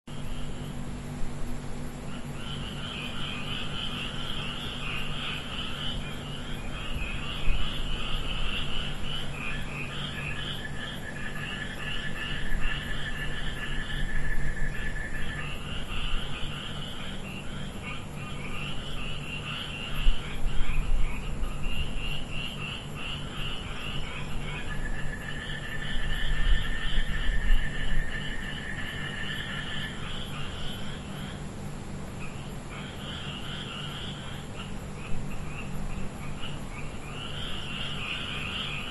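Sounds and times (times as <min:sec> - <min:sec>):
night chorus of calling animals: 0:00.1 - 0:38.9.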